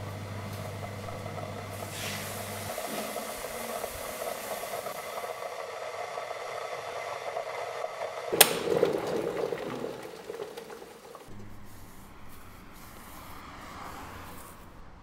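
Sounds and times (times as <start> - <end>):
electric kettle hissing: 0.0 - 11.4
water bubbling: 8.3 - 11.3.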